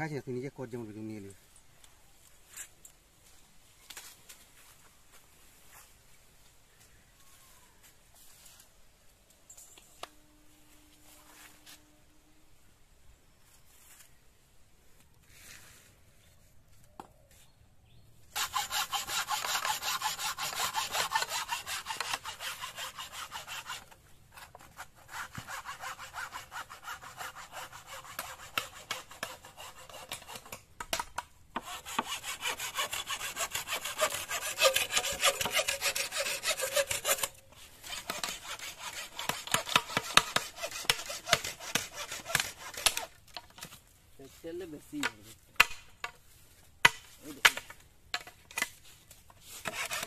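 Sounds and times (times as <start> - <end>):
hand saw cutting bamboo: 18.3 - 43.8, 45.0 - 46.2, 46.8 - 50.0.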